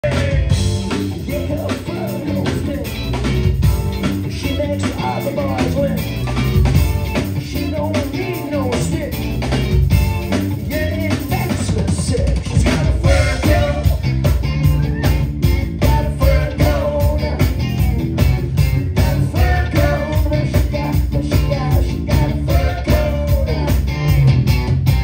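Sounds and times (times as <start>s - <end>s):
man singing: 0.0s - 3.1s, 4.2s - 6.3s, 7.3s - 9.4s, 10.5s - 14.2s, 15.8s - 24.2s
funk band playing: 0.0s - 25.0s.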